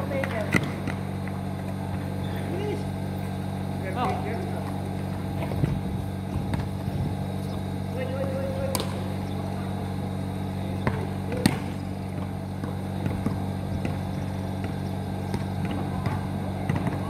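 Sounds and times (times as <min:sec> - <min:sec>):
basketball bouncing on court: 0:00.0 - 0:02.3, 0:04.0 - 0:06.9, 0:10.7 - 0:17.0
steady low hum: 0:00.0 - 0:17.0.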